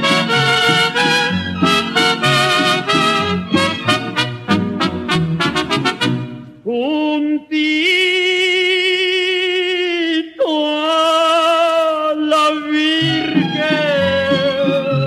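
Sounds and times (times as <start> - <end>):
man singing with wide vibrato: 6.6 - 15.0.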